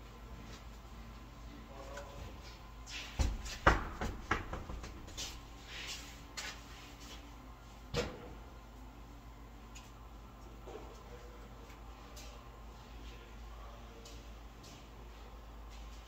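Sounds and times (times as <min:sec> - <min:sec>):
soft scuffs: 0:01.8 - 0:07.4
wheel clunking and knocking: 0:03.2 - 0:05.3.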